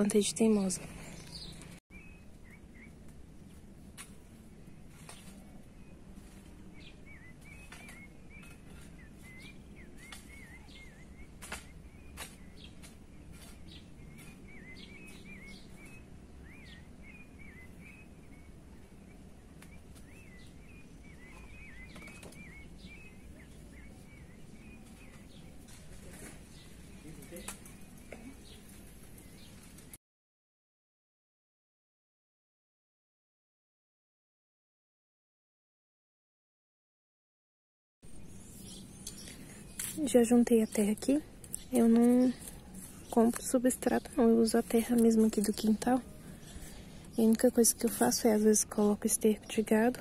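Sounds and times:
low outdoor rumble: 0:00.0 - 0:30.0
small birds chirping: 0:00.0 - 0:30.0, 0:38.0 - 0:50.0
hoe knocking dry soil: 0:11.2 - 0:15.2.

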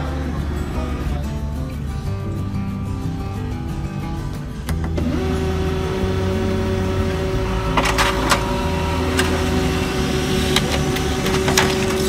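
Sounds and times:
printer humming: 0:05.0 - 0:12.0
paper rustling and clicking: 0:10.5 - 0:12.0.

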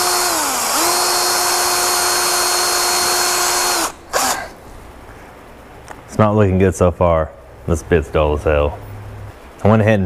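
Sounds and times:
cordless drill motor whine: 0:00.0 - 0:04.6.

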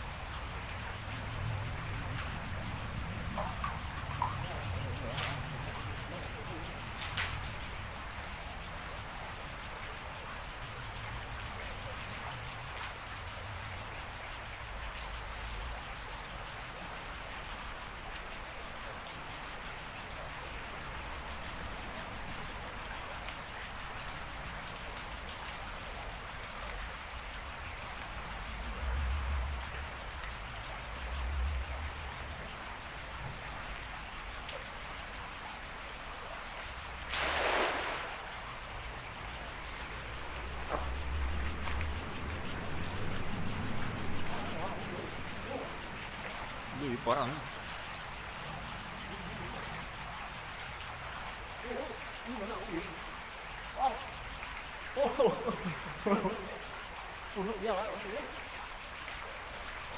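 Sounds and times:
river water flowing: 0:00.0 - 0:59.9
net splashing on water: 0:37.1 - 0:38.4
low rumbles: 0:39.0 - 0:46.8.

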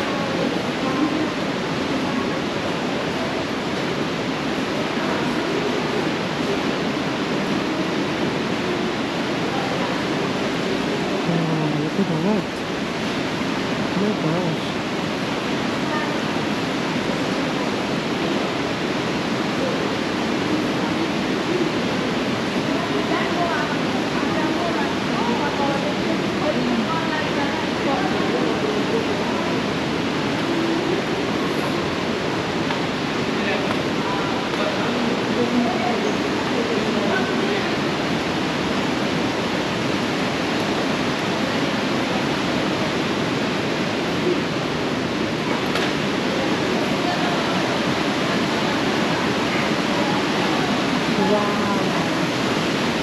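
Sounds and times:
waterfall rushing: 0:00.0 - 0:53.0.

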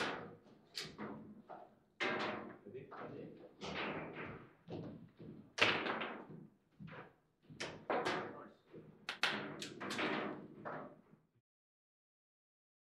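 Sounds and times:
foosball knocks and thuds: 0:02.0 - 0:02.6, 0:05.6 - 0:06.3, 0:09.1 - 0:11.0.

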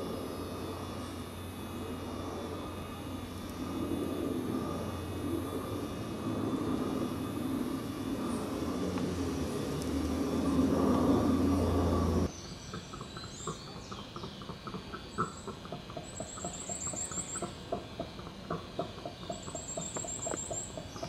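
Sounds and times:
loud rough roar: 0:00.0 - 0:12.3
birds trilling and chirping: 0:00.0 - 0:21.0.

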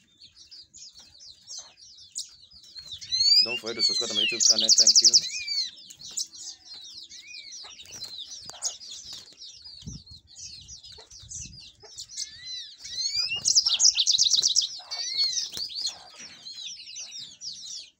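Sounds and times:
canaries chirping and twittering: 0:00.0 - 0:17.9
wings fluttering against cage: 0:07.7 - 0:10.0, 0:12.8 - 0:16.6.

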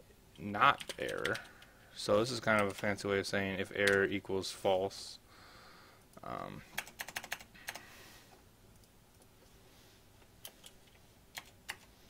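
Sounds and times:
faint room hiss: 0:00.0 - 0:12.0.

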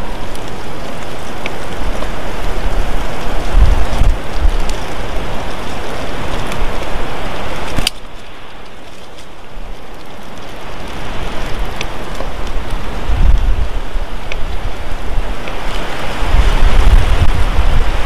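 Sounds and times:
rushing weather noise: 0:00.0 - 0:18.0.

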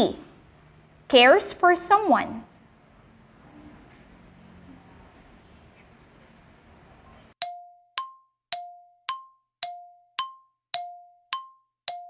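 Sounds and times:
bell-like dings: 0:07.4 - 0:12.0.

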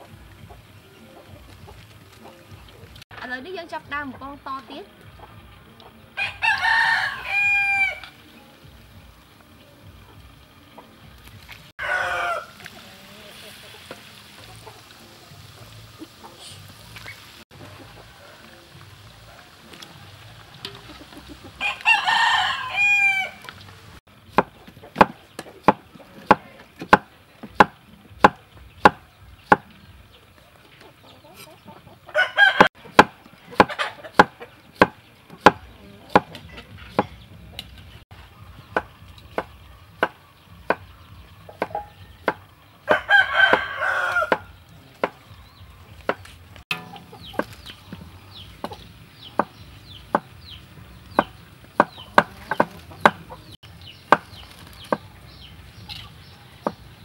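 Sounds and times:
rooster crowing: 0:06.2 - 0:08.2, 0:11.8 - 0:13.1, 0:21.6 - 0:23.5, 0:32.1 - 0:32.8, 0:42.8 - 0:44.5
cleaver chopping on wooden board: 0:24.3 - 0:29.7, 0:32.9 - 0:37.2, 0:44.3 - 0:45.2, 0:49.4 - 0:50.3, 0:51.2 - 0:53.5.

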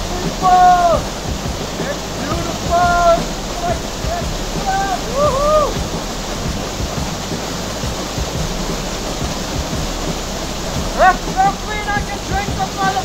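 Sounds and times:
waterfall rushing: 0:00.0 - 0:13.0
man shouting: 0:00.1 - 0:01.1, 0:02.2 - 0:05.8, 0:11.0 - 0:13.0.

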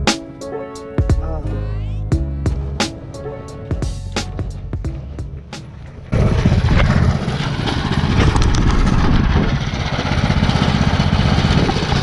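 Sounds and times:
small engine idling: 0:06.1 - 0:12.0.

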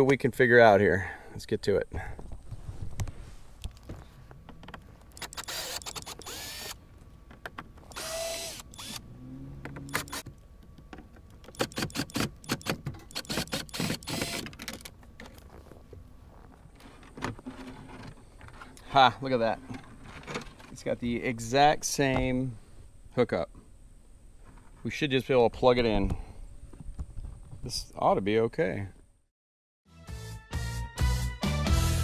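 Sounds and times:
screws clicking and rattling: 0:05.1 - 0:06.8, 0:09.9 - 0:10.3, 0:11.5 - 0:14.9
cordless drill running: 0:05.2 - 0:06.8, 0:07.9 - 0:09.0, 0:09.9 - 0:10.2, 0:13.1 - 0:14.5.

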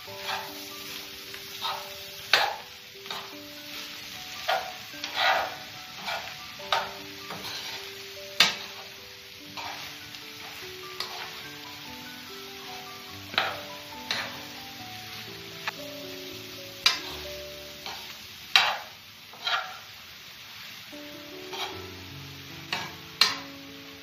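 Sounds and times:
food sizzling in frying pan: 0:00.0 - 0:24.0
utensil scraping pan: 0:00.1 - 0:00.6, 0:01.6 - 0:03.3, 0:04.5 - 0:08.9, 0:09.6 - 0:11.4, 0:13.3 - 0:14.4, 0:18.6 - 0:19.9, 0:21.5 - 0:21.8.

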